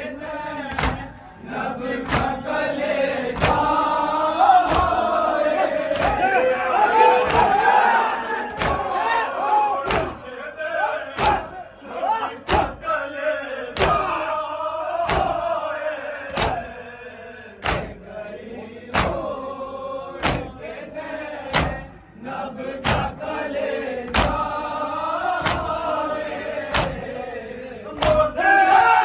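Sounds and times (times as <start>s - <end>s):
group chanting a lament: 0.0s - 29.0s
men slapping chests in unison: 0.6s - 13.0s, 13.6s - 14.3s, 14.9s - 15.6s, 16.2s - 16.8s, 17.6s - 18.1s, 18.9s - 19.5s, 20.2s - 20.7s, 21.3s - 27.2s, 27.9s - 28.7s.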